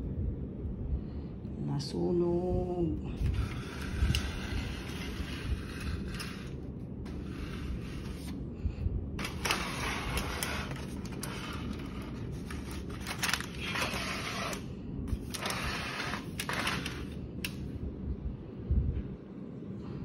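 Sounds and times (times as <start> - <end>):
aluminium foil crinkling: 9.2 - 17.2.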